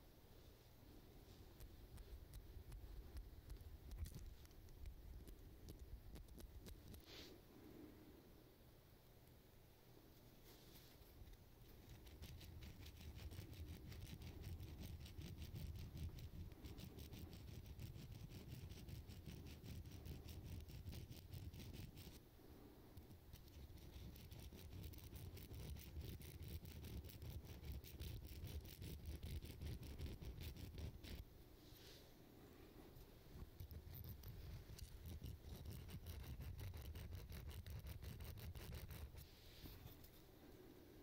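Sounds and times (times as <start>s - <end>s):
file rasping on metal: 23.3s - 31.2s, 33.6s - 39.2s.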